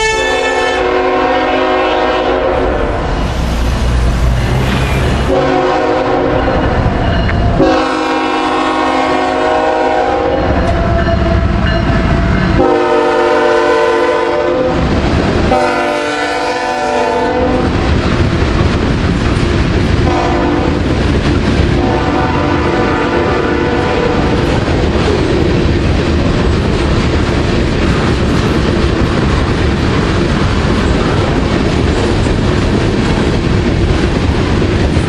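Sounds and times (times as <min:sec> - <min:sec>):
train air horn blasts: 0:00.0 - 0:03.1, 0:05.1 - 0:06.7, 0:07.6 - 0:11.4, 0:12.1 - 0:14.9, 0:15.5 - 0:17.7, 0:20.0 - 0:20.9, 0:21.8 - 0:24.4
slow train rumbling: 0:00.0 - 0:35.0.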